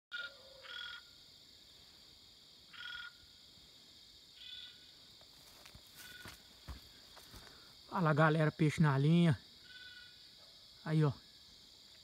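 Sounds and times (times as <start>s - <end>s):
high-pitched insect hum: 0.1s - 12.0s
frog buzzy pulsed calls: 2.7s - 3.3s, 9.6s - 10.2s.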